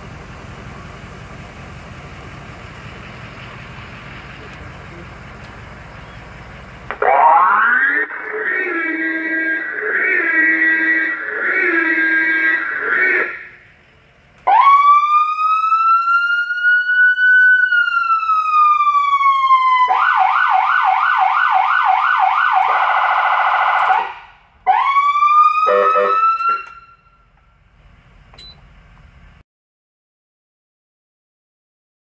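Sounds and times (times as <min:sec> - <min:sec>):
fire engine electronic siren: 0:06.9 - 0:13.7, 0:14.4 - 0:27.4.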